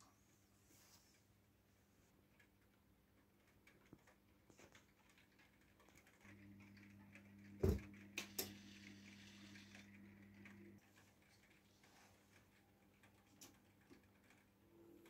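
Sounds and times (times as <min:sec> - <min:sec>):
model train electrical hum: 0:06.2 - 0:10.8.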